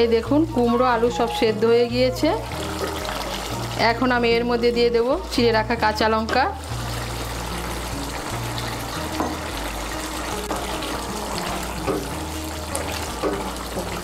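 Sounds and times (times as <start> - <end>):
soft background music: 0.0 - 14.0
curry simmering and bubbling: 2.4 - 4.0, 6.6 - 14.0.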